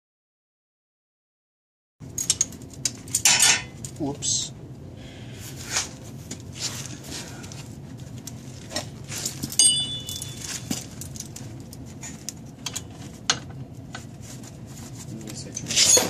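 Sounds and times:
metal tools clinking: 2.1 - 4.0, 8.7 - 11.4, 15.4 - 16.0
sharp ringing clang: 9.5 - 10.7.

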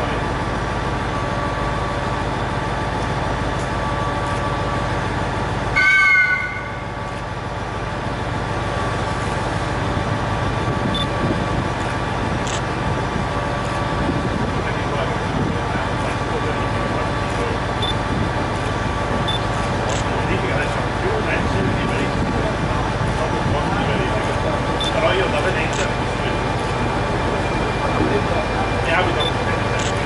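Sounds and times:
train humming at station: 0.0 - 30.0
short high-pitched train toot: 5.7 - 7.0.

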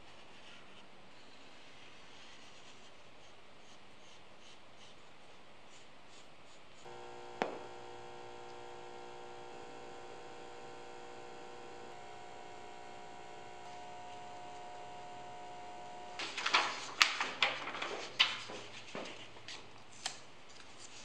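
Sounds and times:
electrical hum with held tones: 6.8 - 16.6.

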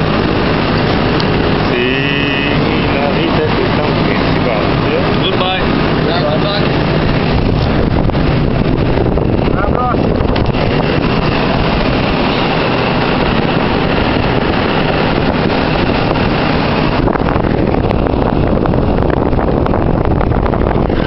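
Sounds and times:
mechanical drone: 0.0 - 21.0
wind on microphone: 0.0 - 21.0.

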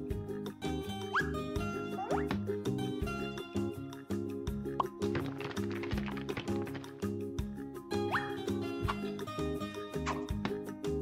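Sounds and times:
instrumental background music: 0.0 - 11.0.

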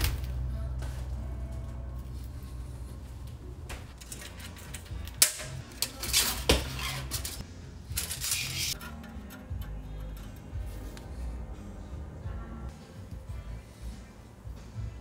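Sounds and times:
metal scraping: 3.9 - 11.8.

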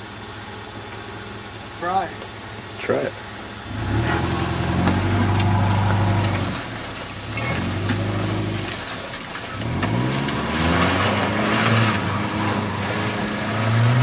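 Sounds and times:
rush of tyres and brush: 3.4 - 14.0
car engine revving: 3.5 - 14.0.

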